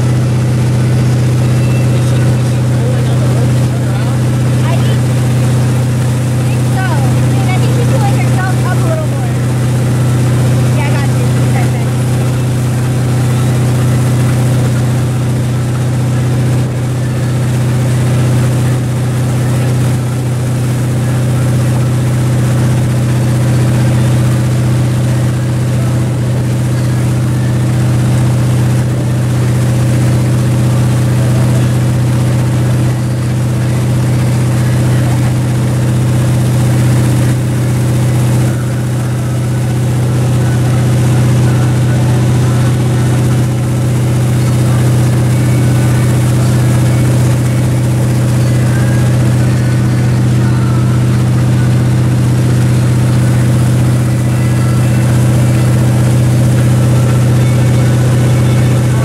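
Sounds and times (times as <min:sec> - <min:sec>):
motorboat engine humming: 0:00.0 - 0:59.0
water rushing: 0:00.0 - 0:59.0.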